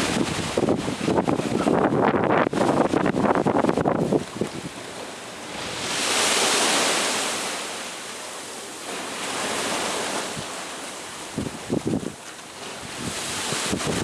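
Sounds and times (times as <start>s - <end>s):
wind buffeting microphone: 0.0s - 7.1s, 11.3s - 14.0s
ocean surf washing ashore: 0.0s - 14.0s.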